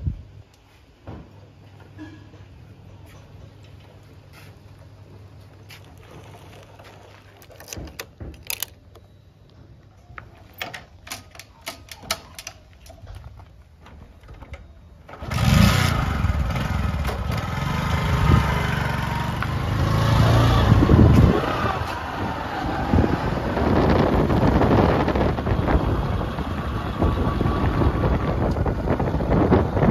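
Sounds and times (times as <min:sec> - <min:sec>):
motorcycle engine: 0:15.1 - 0:29.9
wind on microphone: 0:20.0 - 0:29.9.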